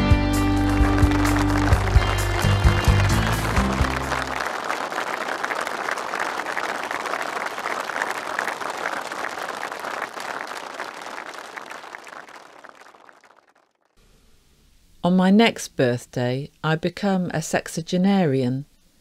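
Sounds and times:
audience applauding: 0.3 - 14.0.

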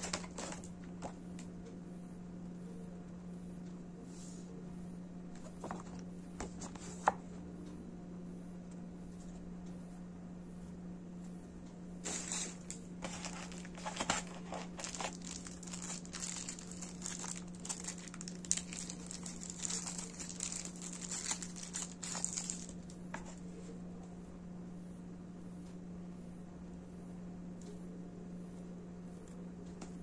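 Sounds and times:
plastic wrapping crinkling: 0.0 - 1.2, 12.0 - 23.0.

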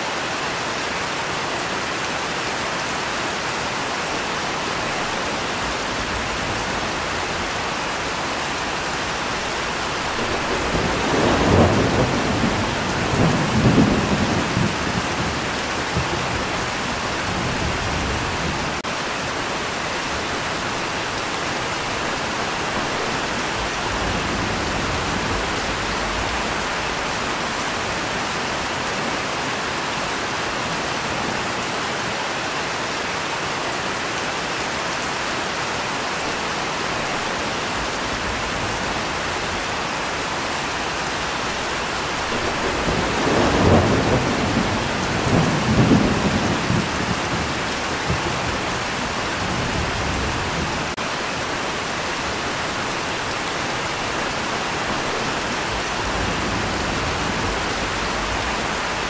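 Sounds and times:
steady rain: 0.0 - 59.0
thunder rolling: 9.6 - 18.8, 41.6 - 48.8.

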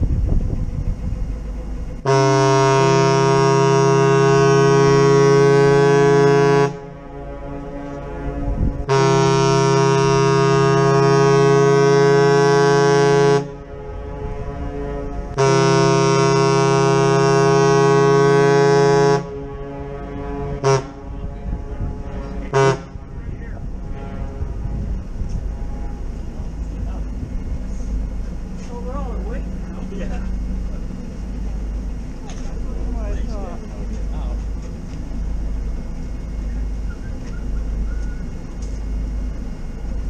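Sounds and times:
wind rumble on microphone: 0.0 - 2.0, 7.9 - 8.9, 13.6 - 15.4, 19.4 - 28.6
ship horn blast: 1.4 - 40.0.

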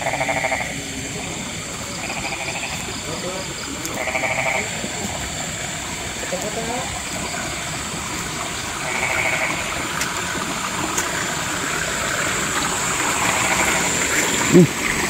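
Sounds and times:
high thin insect drone: 0.0 - 15.0
water running in ditch: 0.0 - 15.0
short vocal sound from person: 14.5 - 14.8.

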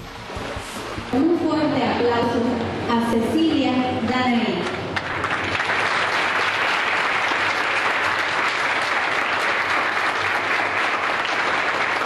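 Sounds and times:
crowd applauding: 4.6 - 12.0.

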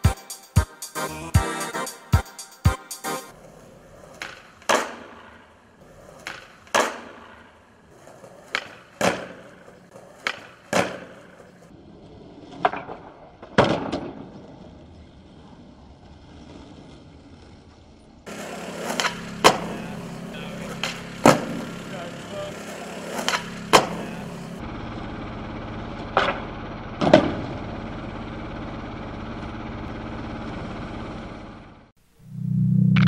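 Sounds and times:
skateboard tail clack: 3.9 - 11.7, 12.4 - 14.6, 18.3 - 20.0, 20.6 - 21.8, 22.6 - 24.2
skateboard landing slap: 4.0 - 5.5, 6.1 - 7.6, 8.2 - 11.5, 12.4 - 14.6, 18.4 - 19.9, 20.7 - 21.7, 23.0 - 24.2, 26.1 - 27.5.

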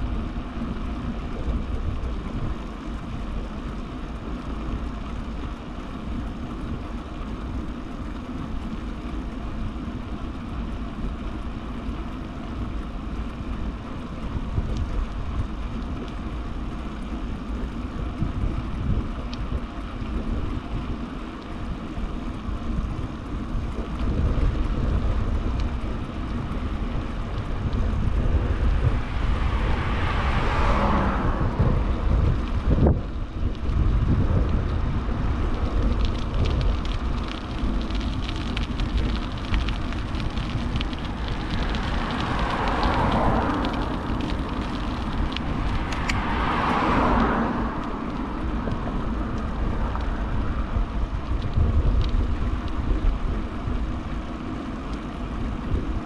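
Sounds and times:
tyres rolling on asphalt: 0.0 - 56.0
wind buffeting microphone: 12.7 - 56.0.

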